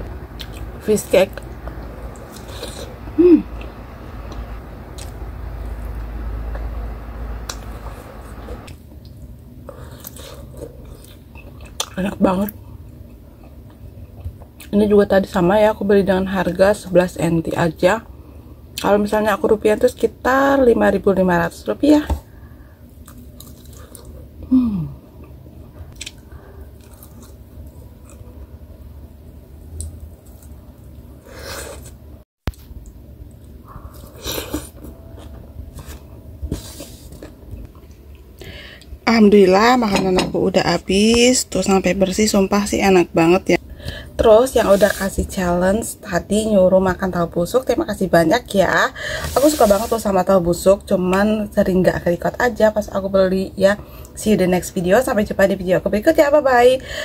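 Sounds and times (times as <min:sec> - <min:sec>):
low rumble: 0:00.0 - 0:08.7
person chewing: 0:00.4 - 0:00.7, 0:01.6 - 0:03.0, 0:07.4 - 0:12.0, 0:23.0 - 0:24.2, 0:26.0 - 0:28.3, 0:29.8 - 0:30.6, 0:33.4 - 0:38.2
person humming: 0:03.1 - 0:03.6, 0:24.4 - 0:25.0.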